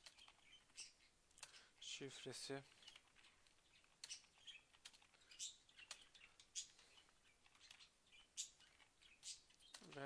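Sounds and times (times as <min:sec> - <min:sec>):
keyboard typing clicks: 0:00.0 - 0:00.8, 0:02.7 - 0:06.8.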